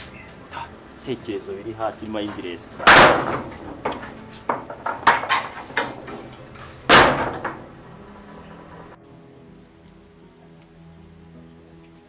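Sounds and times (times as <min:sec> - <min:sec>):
sharp knocks and bangs: 0:02.3 - 0:07.8.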